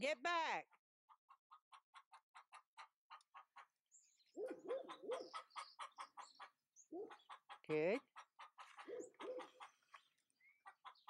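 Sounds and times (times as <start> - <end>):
birds chirping: 3.9 - 7.9.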